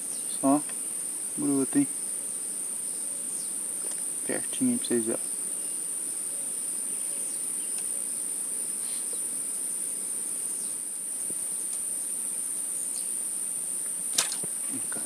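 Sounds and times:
high-pitched insect chorus: 0:00.0 - 0:15.0
faint ticks: 0:07.7 - 0:07.9.

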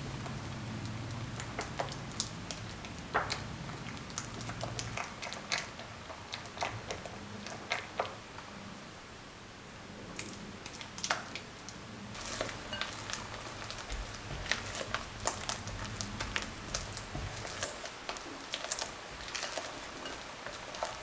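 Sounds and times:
cream squelching: 0:12.1 - 0:21.0.

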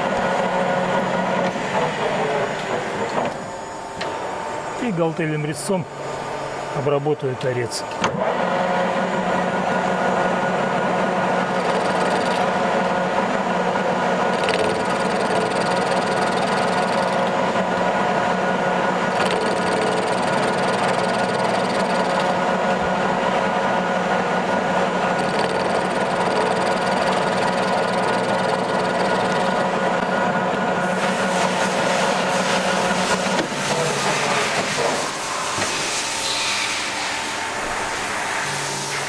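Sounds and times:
lathe whining: 0:07.8 - 0:39.0.

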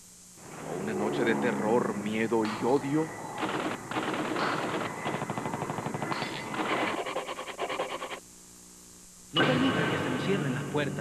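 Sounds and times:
rapid automatic gunfire: 0:03.4 - 0:08.2.

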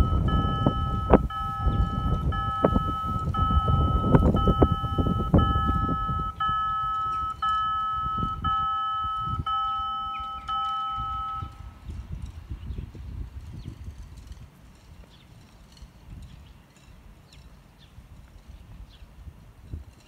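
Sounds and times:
crossing warning bell: 0:00.0 - 0:11.8
low rumbling: 0:00.0 - 0:14.7.

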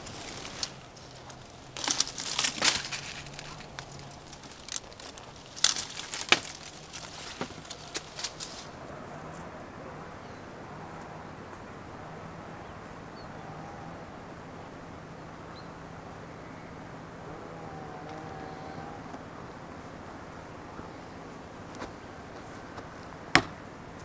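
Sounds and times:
branches snapping: 0:00.0 - 0:09.4, 0:22.8 - 0:23.6
leafy branches rustling: 0:00.0 - 0:24.0.

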